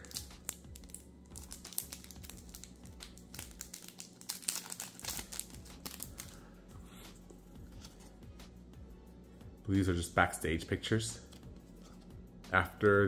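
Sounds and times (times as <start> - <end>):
plastic wrapping crinkling: 0.0 - 6.4.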